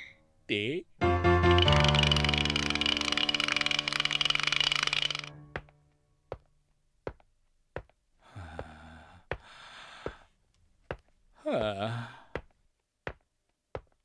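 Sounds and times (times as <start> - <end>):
music: 1.0 - 6.2
cartoon footsteps tapping: 1.3 - 14.0
breathy vocal sound: 8.2 - 10.3, 11.4 - 12.4.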